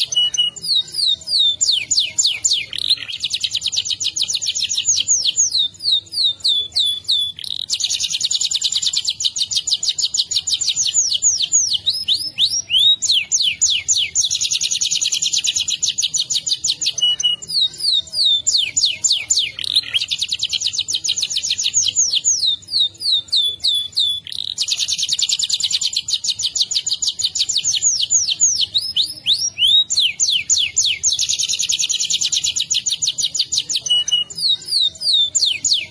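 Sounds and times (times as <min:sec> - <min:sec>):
canary singing trills: 0:00.0 - 0:35.9.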